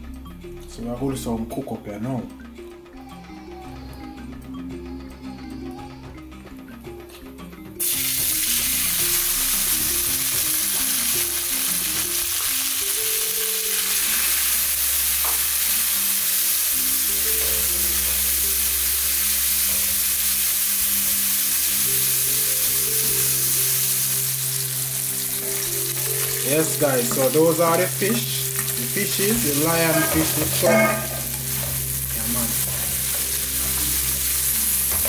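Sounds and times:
vegetables sizzling in hot oil: 7.8s - 35.0s.

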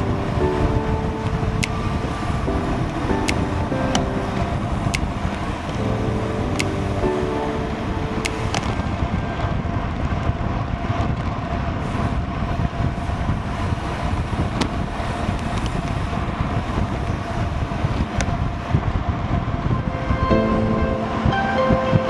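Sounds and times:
wind rushing over microphone: 0.0s - 22.0s
sharp ticks: 2.8s - 4.1s, 6.5s - 7.0s.

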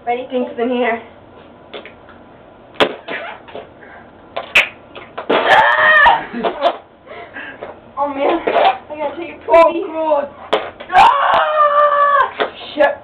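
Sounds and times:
woman shrieking: 5.4s - 6.4s, 10.9s - 12.4s.

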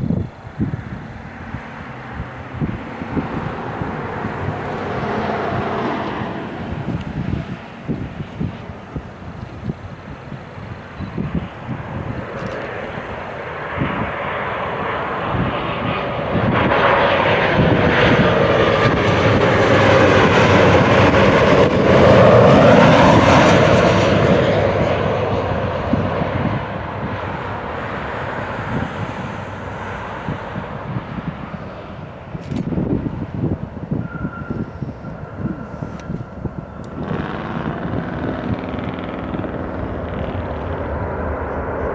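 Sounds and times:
jet engines flying low past: 0.0s - 41.9s.

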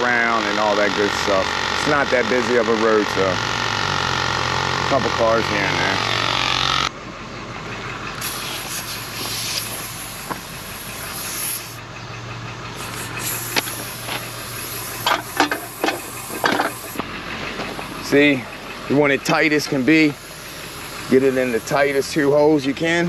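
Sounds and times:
vehicle engine idling: 0.0s - 23.0s
compressed air hissing into tire: 8.2s - 11.8s, 12.8s - 18.5s, 19.4s - 23.0s
metal clanks: 15.0s - 17.9s.

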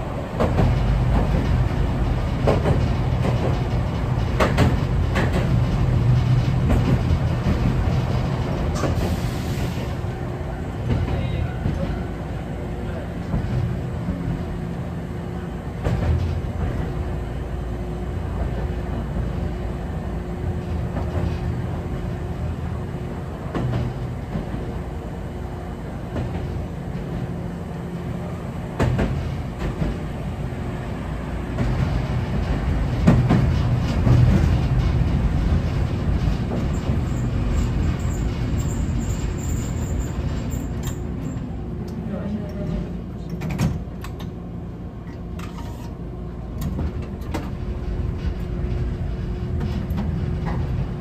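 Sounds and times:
tram rumbling on tracks: 0.0s - 51.0s
wheels clacking over rail joints: 0.4s - 9.2s, 31.5s - 44.3s.

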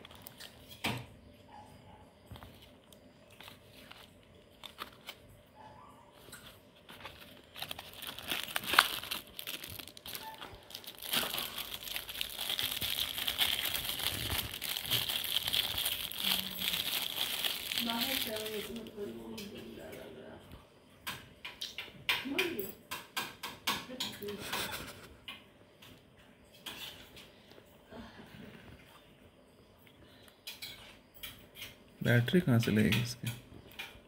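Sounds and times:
plastic wrapper crinkling: 0.0s - 0.9s, 2.3s - 5.4s, 6.2s - 19.0s.

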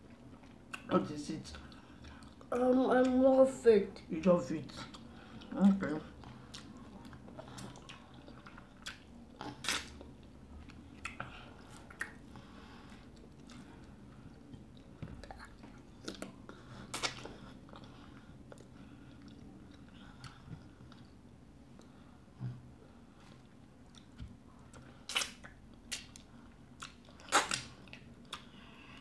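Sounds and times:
people chewing food: 0.0s - 3.5s, 4.7s - 29.0s
mouth smacks and clicks: 8.8s - 10.0s, 11.9s - 12.2s, 25.1s - 28.5s.

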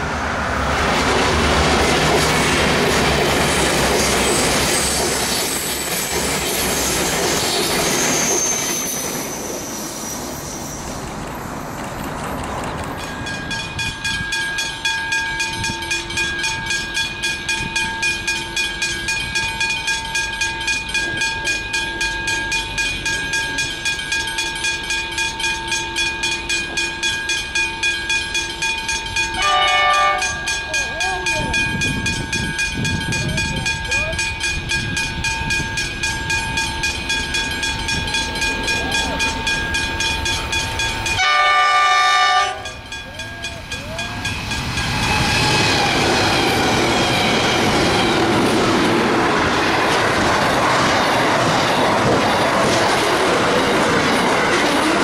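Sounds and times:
diesel train passing: 0.0s - 55.0s
level crossing bell ringing: 13.0s - 45.0s.

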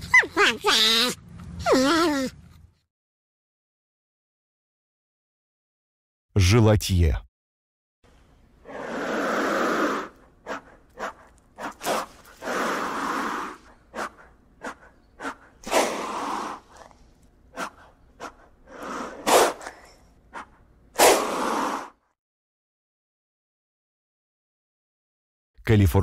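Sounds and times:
sharp puffs of breath: 8.6s - 16.8s, 17.6s - 22.0s
lizard hissing: 8.6s - 22.0s.

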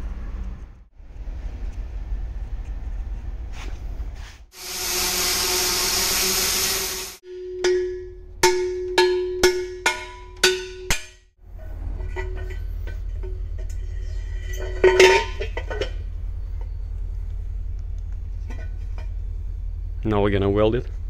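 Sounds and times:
cutting torch hissing: 4.5s - 7.2s.

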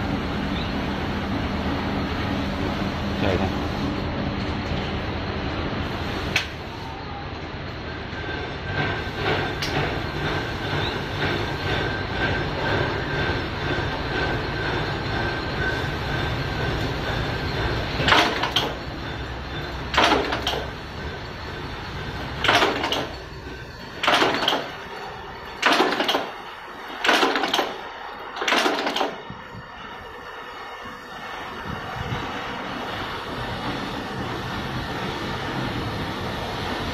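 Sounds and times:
loud noisy rattles: 8.7s - 29.3s.

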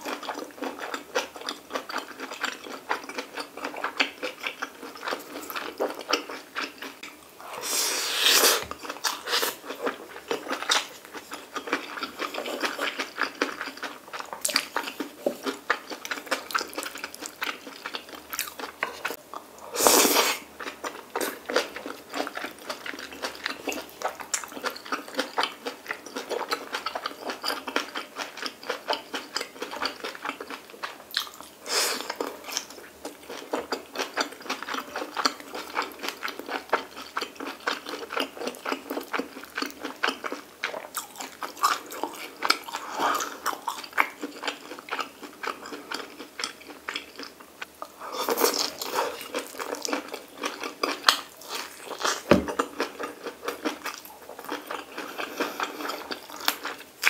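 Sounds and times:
mouth chewing clicks and crunches: 0.0s - 7.2s, 8.7s - 19.5s, 20.6s - 57.0s.

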